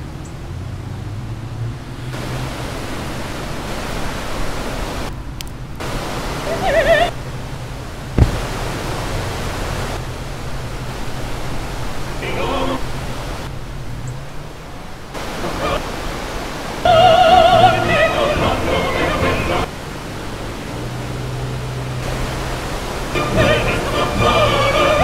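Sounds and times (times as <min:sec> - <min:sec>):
hissing ambient noise: 0:01.9 - 0:25.0
sharp thump: 0:08.2 - 0:08.6.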